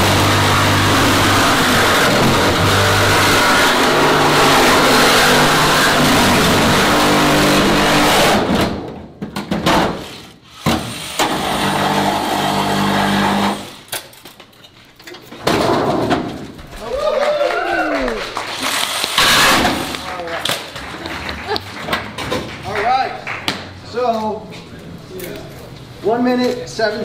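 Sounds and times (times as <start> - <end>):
reciprocating saw cutting sheet metal: 0.0 - 8.5, 10.1 - 13.8, 18.7 - 20.1.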